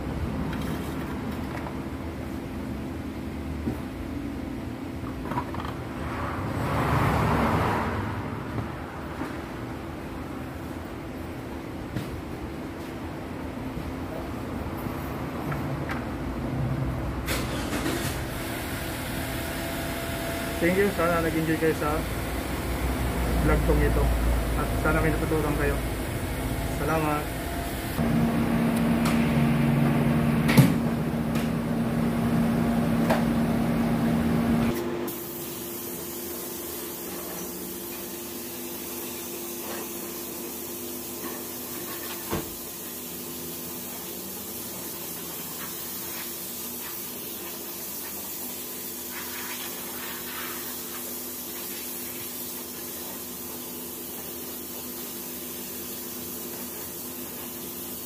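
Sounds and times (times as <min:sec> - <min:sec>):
steady hum: 0:18.8 - 0:35.0
spray gun hissing: 0:35.1 - 0:58.0.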